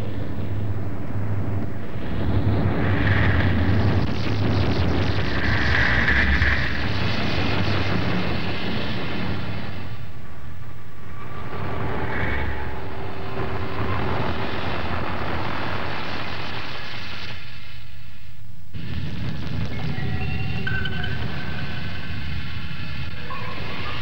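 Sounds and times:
lava eruption rumble: 0.0 - 10.2, 10.9 - 17.8.

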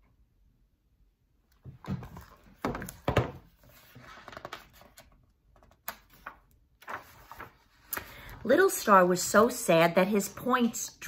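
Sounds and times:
book handling knocks: 1.7 - 3.5
pages rustling: 1.9 - 8.7.

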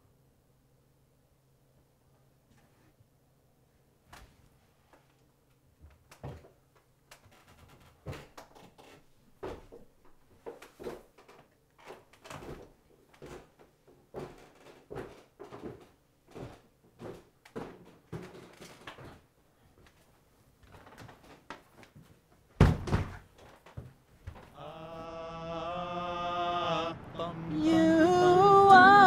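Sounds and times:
footsteps on indoor stairs: 5.7 - 24.6.

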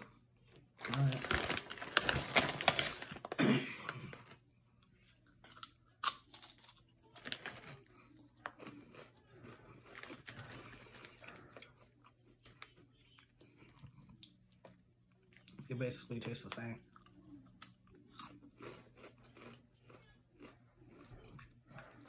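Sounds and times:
potato chip crunching: 0.8 - 3.4, 5.3 - 13.3, 15.4 - 22.0
plastic chip bag crinkling: 0.8 - 4.4, 5.4 - 11.8.

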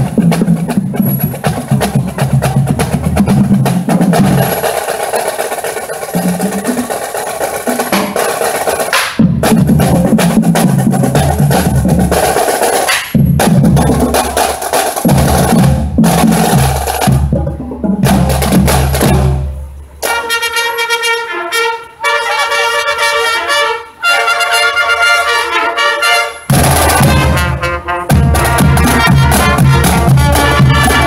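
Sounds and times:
snare and bass drums: 0.0 - 20.4, 26.5 - 31.0
brass band tune: 0.0 - 31.0.

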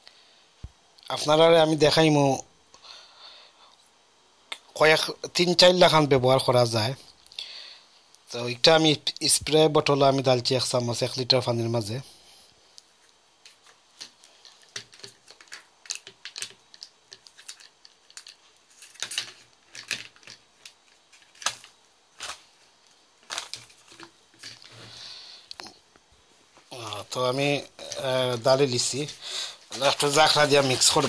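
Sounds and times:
plastic bag crinkling: 14.0 - 22.6, 23.2 - 25.0, 27.8 - 31.0.

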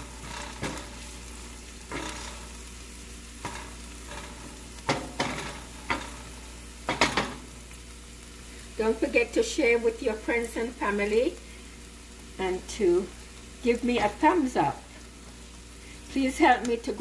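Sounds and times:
wooden spoon scraping a pan: 0.0 - 7.4
onions sizzling in oil: 0.0 - 17.0.

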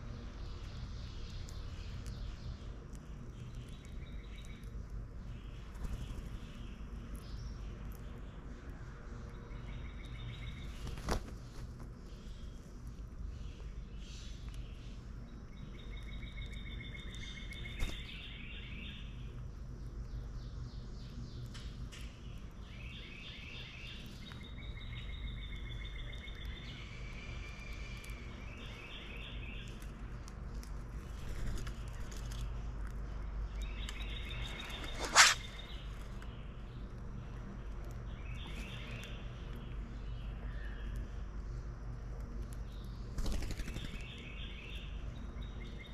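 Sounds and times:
low background rumble: 0.0 - 45.9
songbirds singing trills: 0.0 - 45.9.

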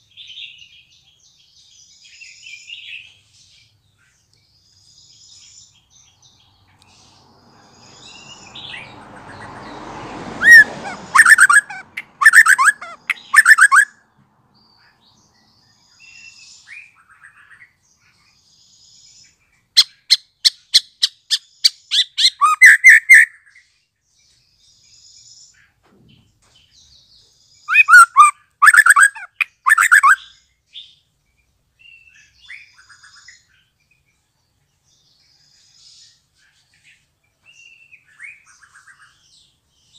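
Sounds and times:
soft bird calls: 0.0 - 39.9
bird singing rapid high notes: 10.4 - 13.9, 19.8 - 23.4, 27.7 - 30.4.

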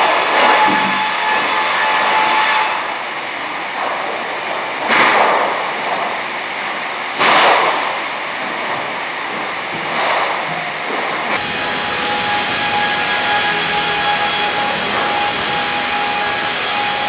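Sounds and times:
sawmill machine noise: 11.3 - 17.0.

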